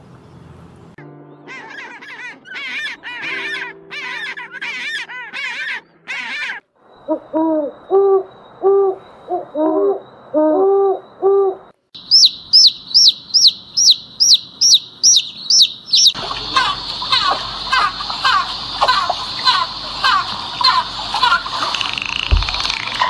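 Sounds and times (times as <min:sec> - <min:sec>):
honking bird calls: 0:01.3 - 0:22.4
owl hooting: 0:01.5 - 0:21.8
chicks peeping: 0:12.0 - 0:21.4.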